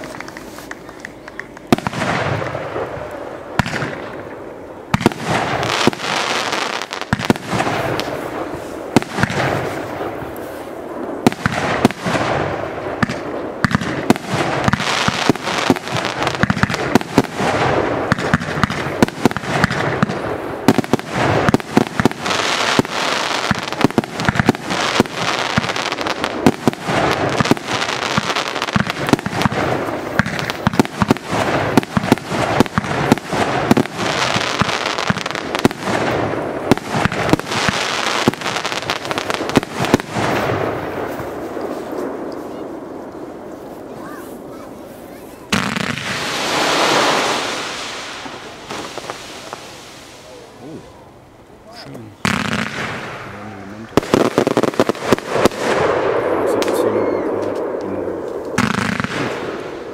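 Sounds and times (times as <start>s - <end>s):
fireworks bangs: 0.0s - 59.9s
fireworks crackle: 0.0s - 59.9s.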